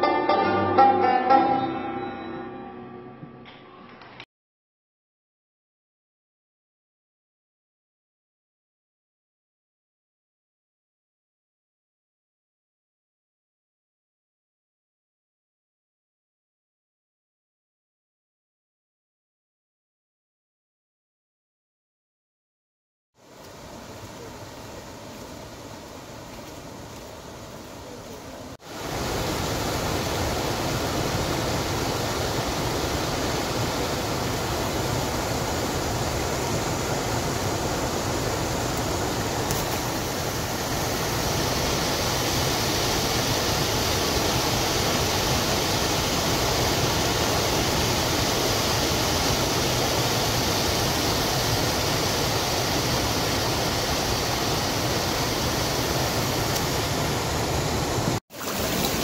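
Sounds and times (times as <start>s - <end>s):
water rushing over a weir: 23.2s - 59.0s.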